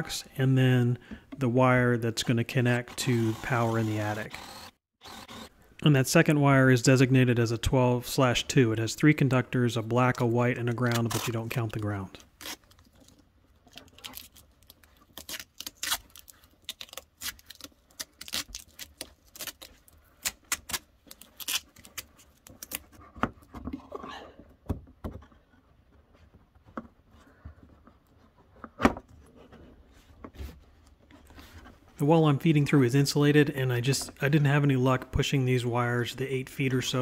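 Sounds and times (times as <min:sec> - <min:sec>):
plastic cable crinkling and scraping: 0:10.7 - 0:20.4.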